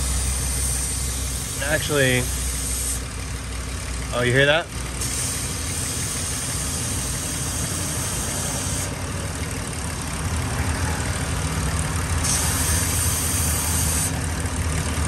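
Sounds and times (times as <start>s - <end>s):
car engine idling: 0.0s - 15.0s
air hissing through hose: 0.3s - 3.0s, 5.0s - 8.9s, 12.2s - 14.1s.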